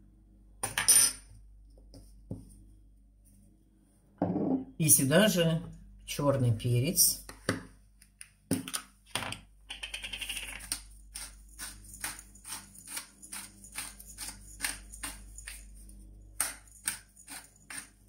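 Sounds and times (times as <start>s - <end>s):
pepper mill grinding: 9.7s - 18.0s.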